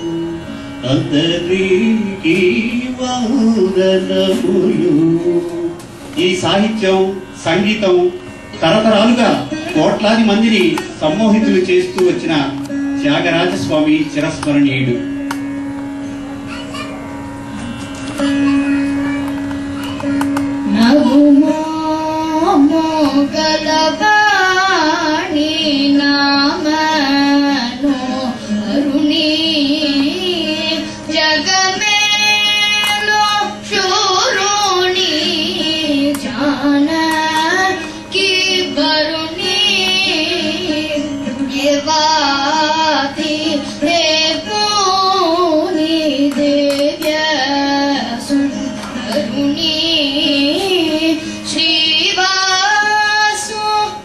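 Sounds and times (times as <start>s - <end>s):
child singing: 16.5s - 17.0s, 28.9s - 54.0s.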